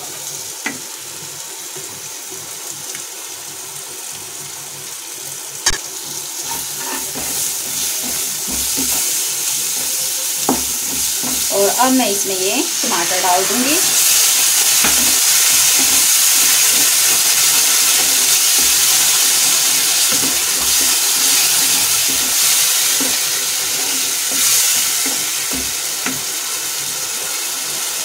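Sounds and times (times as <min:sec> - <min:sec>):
sauce sizzling in hot oil: 0:00.0 - 0:28.0
spatula knocking against pan: 0:06.8 - 0:11.5.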